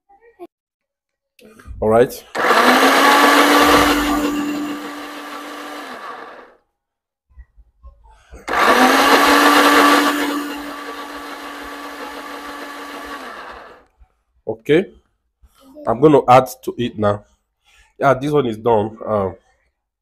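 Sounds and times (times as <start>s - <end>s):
blender motor grinding: 2.4s - 6.6s, 8.5s - 13.9s.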